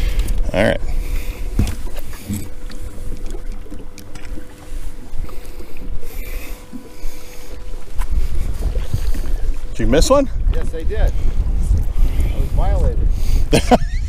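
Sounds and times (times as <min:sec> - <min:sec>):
water sloshing against metal hull: 0:00.0 - 0:12.3
faint steady hum: 0:00.0 - 0:14.0
wind buffeting microphone: 0:00.0 - 0:14.0.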